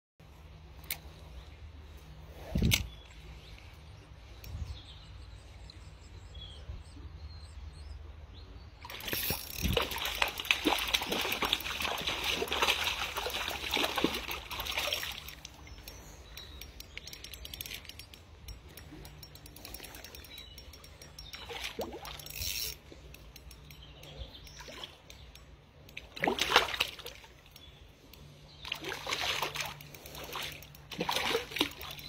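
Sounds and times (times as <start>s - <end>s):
water splashing in a stream: 8.8s - 15.6s, 21.4s - 22.4s, 26.0s - 27.6s, 28.6s - 32.0s.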